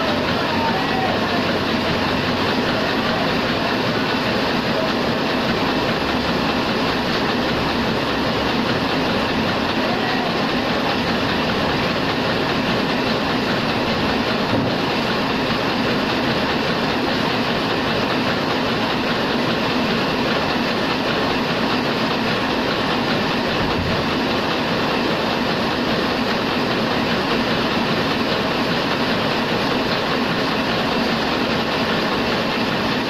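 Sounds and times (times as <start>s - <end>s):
printing press clattering: 0.0s - 33.0s.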